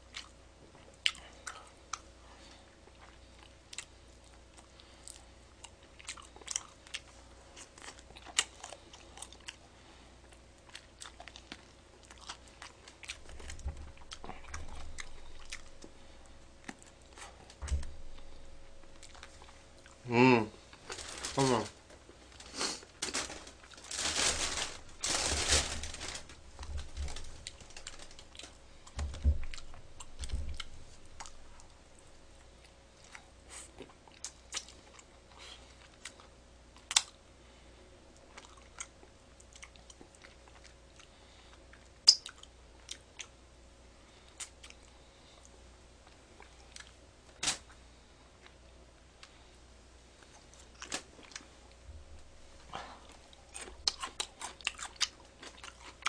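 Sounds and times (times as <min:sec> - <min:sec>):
crunching fried chicken: 0:20.7 - 0:31.7, 0:52.7 - 0:56.0
light clicks of eating: 0:38.2 - 0:43.4.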